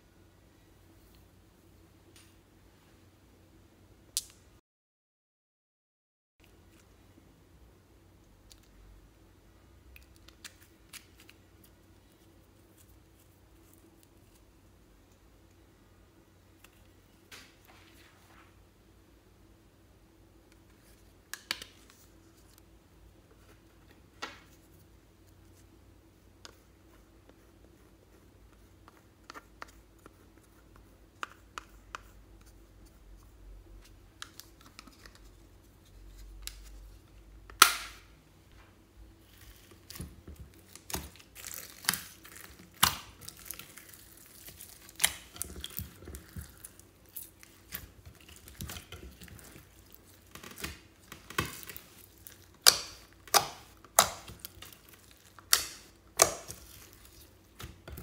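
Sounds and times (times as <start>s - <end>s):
hands kneading glitter slime: 40.6s - 57.9s.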